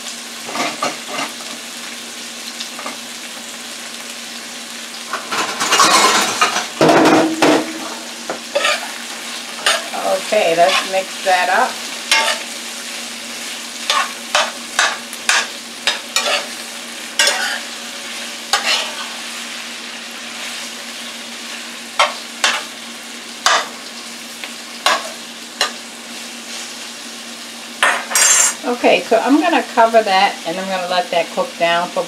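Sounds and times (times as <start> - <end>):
vegetables sizzling in oil: 0.0 - 32.0
metal spoon scraping pan: 8.5 - 9.0, 9.6 - 11.0, 12.1 - 12.5, 13.9 - 16.6, 17.2 - 17.7, 18.5 - 19.2, 28.1 - 28.6.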